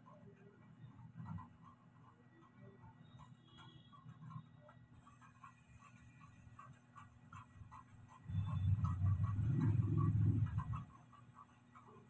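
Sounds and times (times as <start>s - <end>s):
faint regular ticking: 0.0s - 12.0s.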